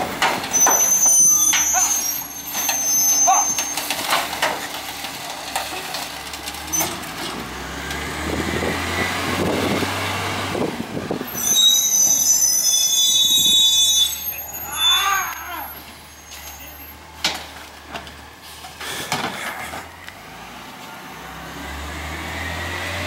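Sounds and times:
brakes squealing: 0.0s - 23.0s
garbage truck engine: 0.0s - 23.0s.

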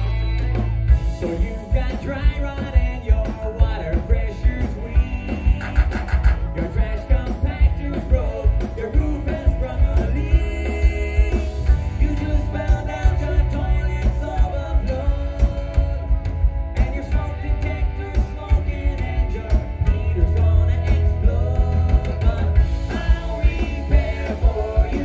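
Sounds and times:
drums: 0.0s - 25.0s
electric guitar: 0.0s - 25.0s
rock band playing live: 0.0s - 25.0s.

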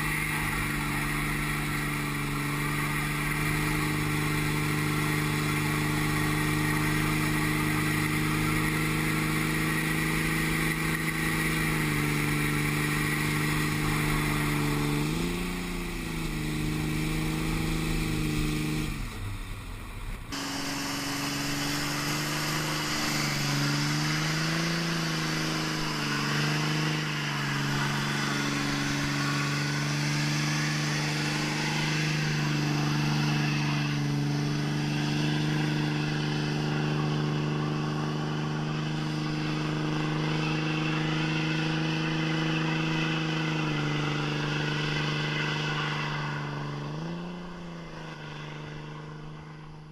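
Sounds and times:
diesel engine revving: 0.0s - 49.9s.

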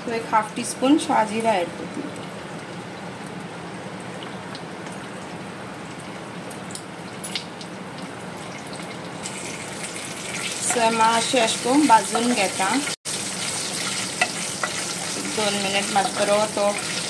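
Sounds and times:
spices sizzling in hot oil: 5.8s - 17.0s.

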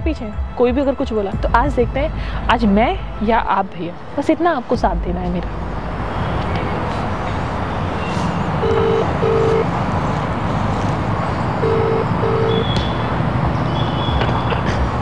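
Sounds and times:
outdoor background noise: 0.0s - 15.0s
phone ringback tone beeps: 8.6s - 9.7s, 11.6s - 12.7s.

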